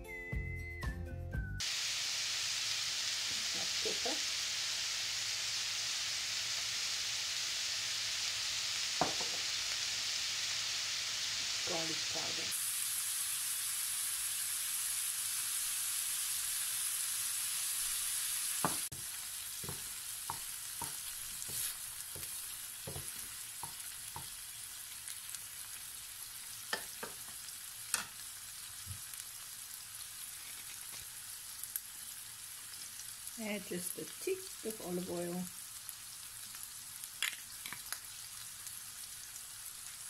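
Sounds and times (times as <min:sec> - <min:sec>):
meat sizzling in a pan: 0:01.6 - 0:40.0
wooden spatula scraping a pan: 0:19.6 - 0:23.8.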